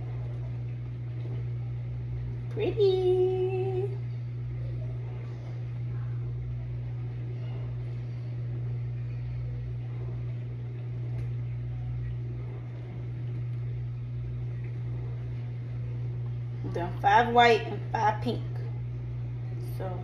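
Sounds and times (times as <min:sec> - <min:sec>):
kitchen vent fan humming: 0:00.0 - 0:20.0.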